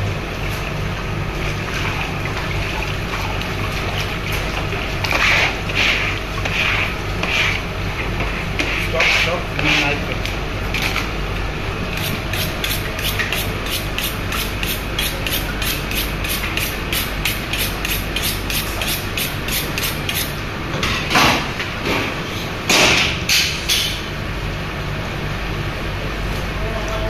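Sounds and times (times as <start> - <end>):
steady low hum: 0.0 - 27.0
blade scraping fish: 5.1 - 7.6
knife strokes on honing steel: 12.0 - 20.3.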